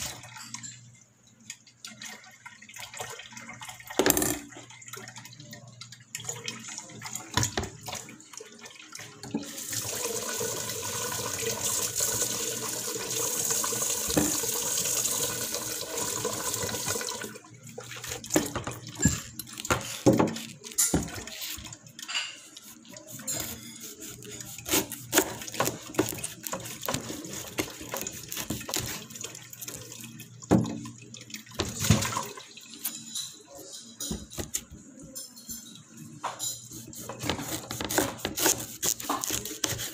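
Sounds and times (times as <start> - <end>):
tap water running into sink: 1.4 - 33.1, 36.8 - 39.9
knocks and clicks in sink: 4.0 - 4.5, 30.5 - 32.3.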